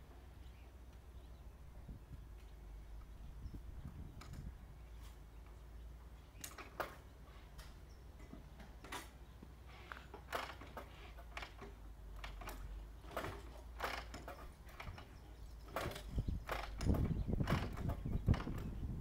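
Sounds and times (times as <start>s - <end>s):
motorcycle kick-starter clicks: 9.9s - 18.8s.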